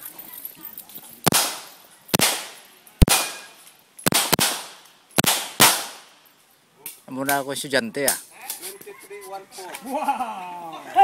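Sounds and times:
pistol shots: 1.2s - 6.1s
gunshot echo ringing: 1.3s - 6.2s.

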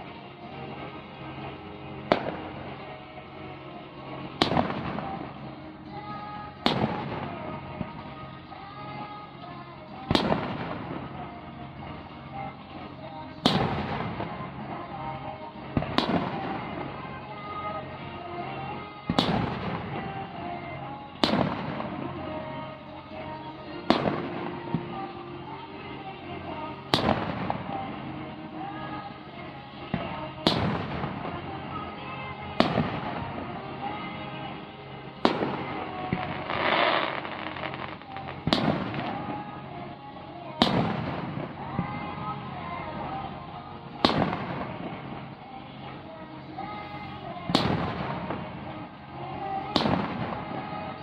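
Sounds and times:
fireworks booming: 0.0s - 2.9s, 4.2s - 8.1s, 10.1s - 11.2s, 12.8s - 14.6s, 15.7s - 17.0s, 19.1s - 20.4s, 21.2s - 22.2s, 23.7s - 25.0s, 26.5s - 29.0s, 29.8s - 31.8s, 32.6s - 39.5s, 40.6s - 43.2s, 44.0s - 45.3s, 47.5s - 48.7s, 49.6s - 51.0s
music playing: 0.0s - 51.0s
firework shells booming: 21.2s - 22.0s
fireworks hiss: 35.2s - 39.3s.

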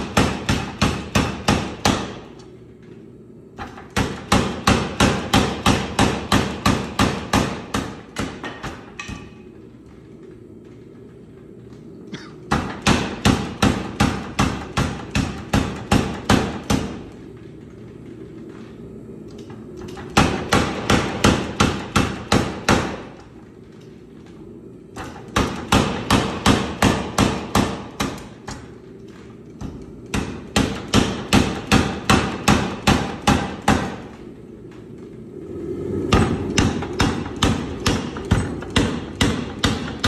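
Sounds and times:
power hammer pounding steel: 0.0s - 2.4s, 3.6s - 9.5s, 12.1s - 17.2s, 19.4s - 23.3s, 24.9s - 28.8s, 29.5s - 34.2s, 36.1s - 40.0s
low hum: 0.0s - 40.0s.

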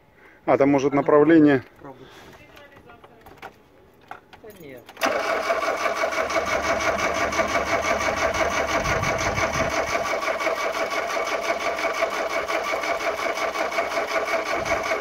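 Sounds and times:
engine cranking on starter motor: 4.9s - 15.0s.

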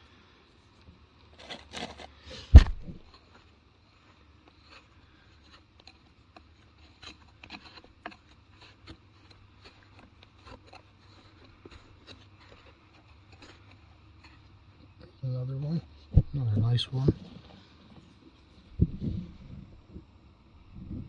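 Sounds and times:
fingers scraping through sand: 1.3s - 15.0s.

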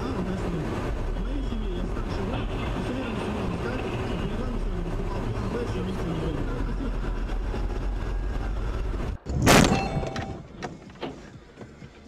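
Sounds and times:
car and road rumble: 0.0s - 12.0s
vehicle collision crash: 9.2s - 11.2s
debris clinking: 9.3s - 10.6s.

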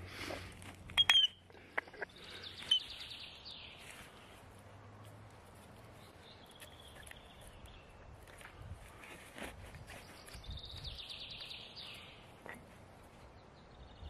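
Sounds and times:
faint outdoor background noise: 0.0s - 14.0s
birdsong chirps and whistle: 1.0s - 4.0s, 9.8s - 12.3s.

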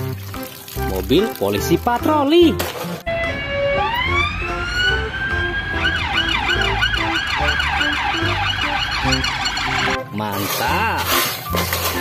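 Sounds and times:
police siren wail and yelp: 3.1s - 10.0s.

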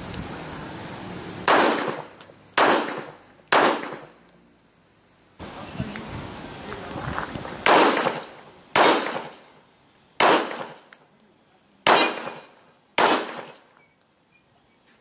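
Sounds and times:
pistol shots: 1.5s - 4.1s, 7.6s - 9.4s, 10.2s - 10.9s, 11.8s - 13.6s.

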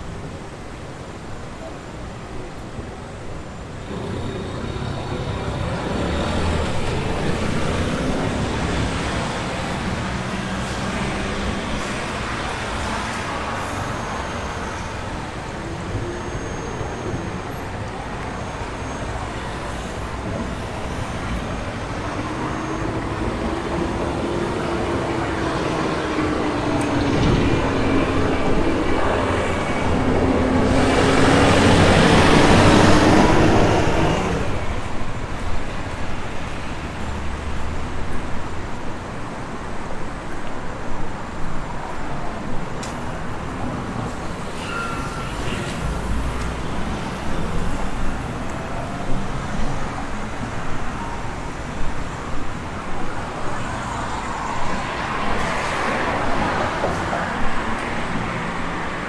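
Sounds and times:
road traffic: 0.0s - 59.0s
vehicle engine hum approaching: 3.8s - 11.8s.

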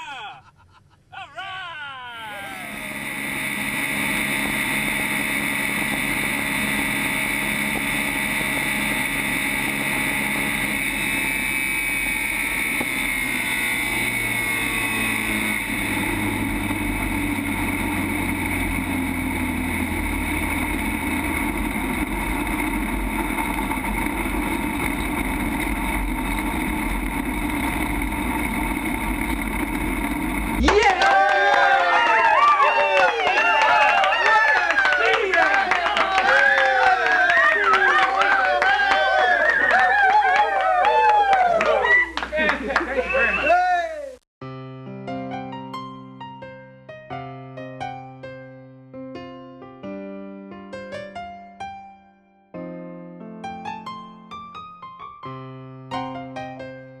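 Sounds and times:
race car engine: 2.3s - 30.6s.

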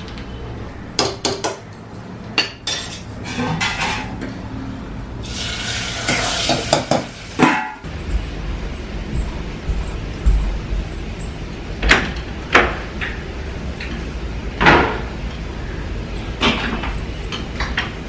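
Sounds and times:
spices sizzling in ghee: 5.2s - 7.4s.

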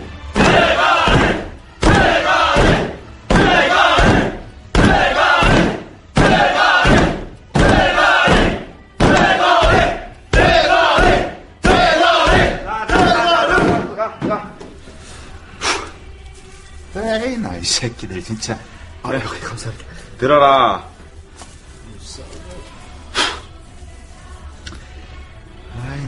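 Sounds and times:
men shouting a chant in unison: 0.4s - 14.2s.

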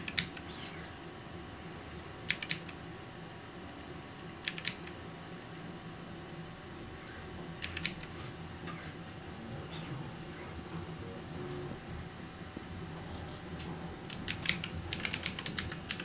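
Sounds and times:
low room hum: 0.0s - 16.0s
computer keyboard key clicks: 1.9s - 2.8s, 4.2s - 4.9s, 7.6s - 8.1s, 14.1s - 16.0s.

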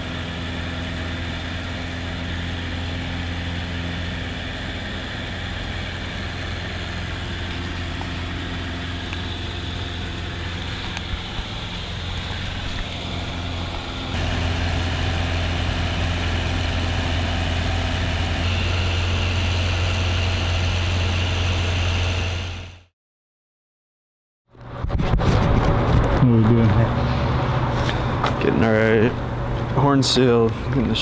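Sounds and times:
plane engine droning: 0.0s - 22.8s.

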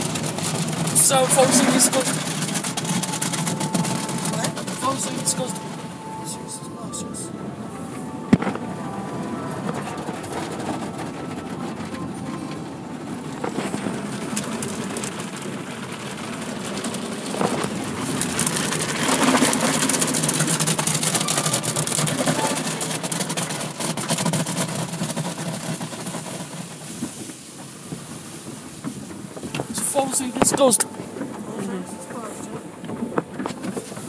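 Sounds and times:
brushes washing car: 0.0s - 5.8s, 13.8s - 30.9s
water spraying on car: 0.0s - 6.5s, 7.4s - 34.0s
low machine rumble: 0.0s - 23.1s.

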